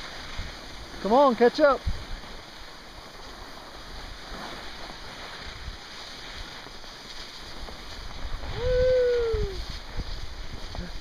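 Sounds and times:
skis hissing over snow: 0:00.0 - 0:11.0
wind on microphone: 0:00.0 - 0:11.0.

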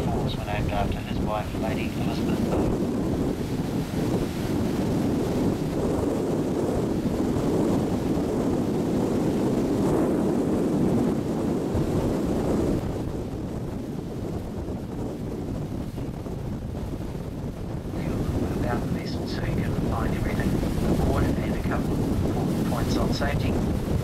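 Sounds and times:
wind buffeting the microphone: 0:00.0 - 0:24.0.

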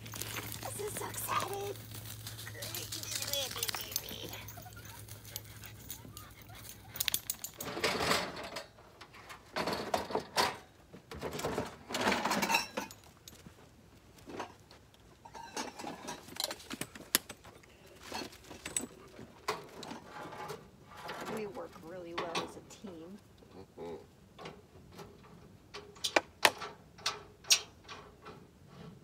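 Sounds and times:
dog panting: 0:04.2 - 0:07.2.

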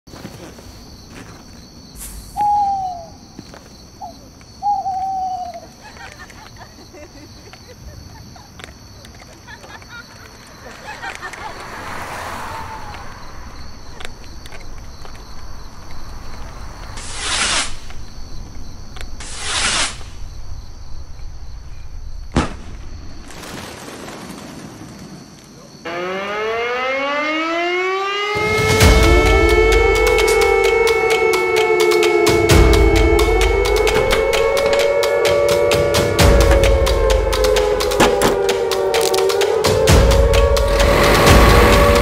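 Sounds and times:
crickets chirring: 0:00.1 - 0:27.1, 0:28.4 - 0:42.0
owl hooting: 0:02.0 - 0:03.4, 0:04.0 - 0:06.0
sharp crack: 0:16.8 - 0:18.2, 0:19.0 - 0:20.3, 0:22.3 - 0:25.2, 0:36.4 - 0:42.0.

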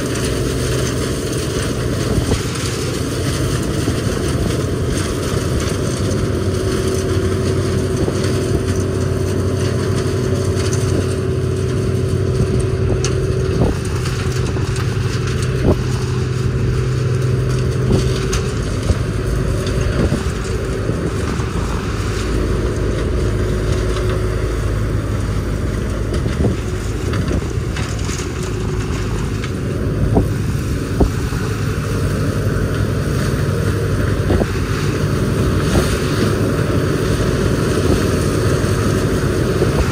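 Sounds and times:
combine harvester machinery hum: 0:00.0 - 0:39.9.

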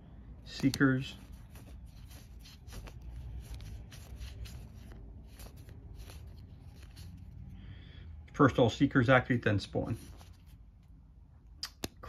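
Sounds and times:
cards rustling and clicking: 0:00.4 - 0:07.5, 0:09.6 - 0:11.0.

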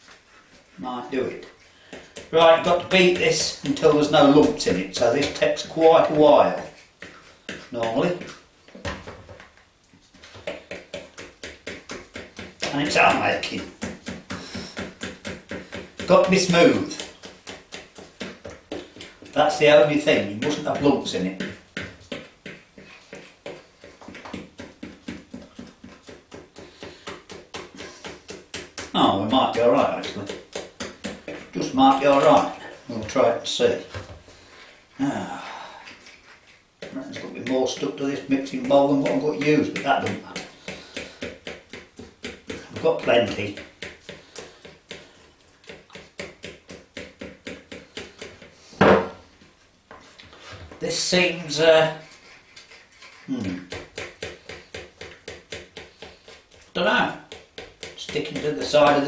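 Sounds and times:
batter beaten in mixing bowl: 0:00.0 - 0:59.0.

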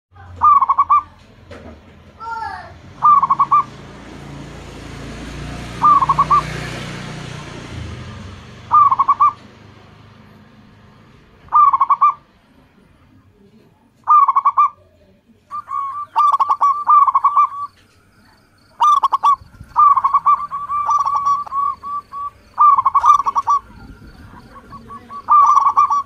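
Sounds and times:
dove cooing: 0:00.2 - 0:01.2, 0:03.0 - 0:03.8, 0:05.5 - 0:09.7, 0:11.5 - 0:12.3, 0:14.0 - 0:14.8, 0:15.5 - 0:26.0.

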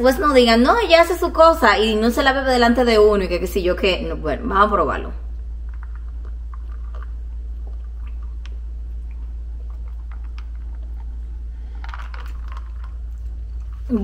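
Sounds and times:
steady low hum: 0:00.0 - 0:14.0
sipping and swallowing: 0:05.4 - 0:14.0.

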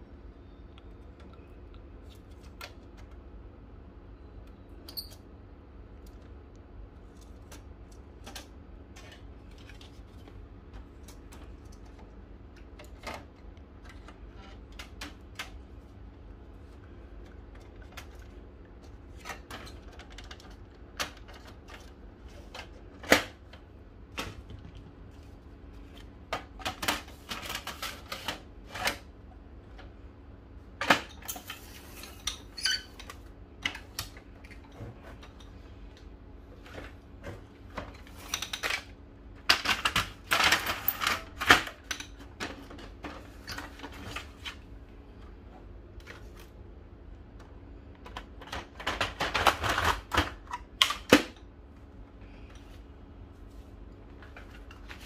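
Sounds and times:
rattling plastic: 0:48.0 - 0:51.3.

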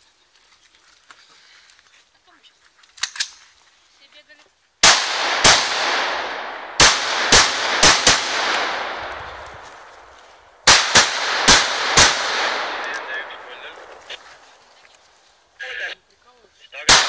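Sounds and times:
rifle shots echoing: 0:04.8 - 0:14.2.

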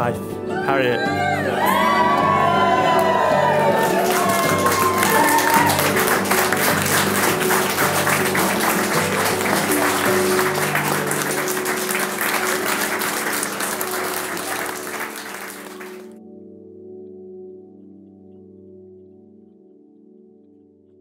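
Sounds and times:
background music: 0:00.0 - 0:21.0
crowd applauding: 0:01.2 - 0:16.2.

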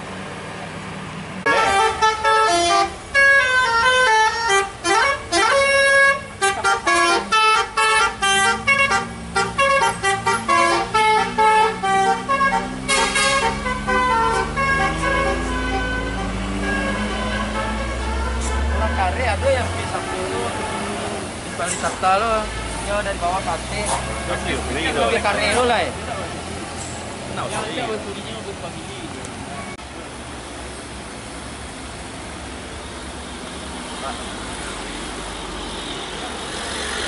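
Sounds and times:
heavy engine drone: 0:00.0 - 0:22.6
bus musical horn: 0:01.4 - 0:27.0.

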